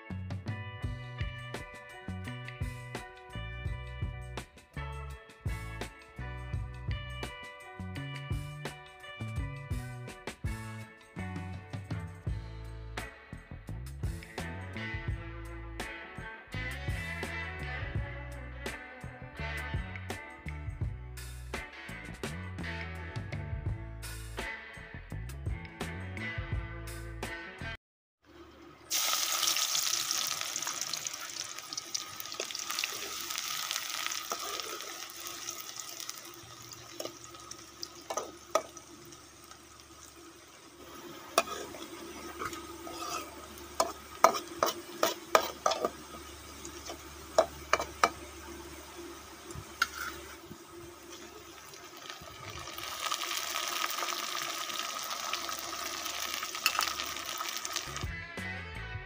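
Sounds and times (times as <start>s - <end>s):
onions sizzling in hot oil: 28.8s - 58.1s
metal ladle scraping pan: 38.1s - 38.8s, 40.9s - 48.4s, 49.7s - 50.4s.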